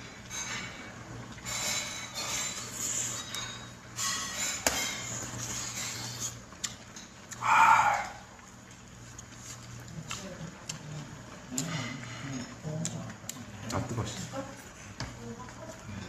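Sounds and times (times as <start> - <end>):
tableware scraping and rustling: 0.2 - 7.2.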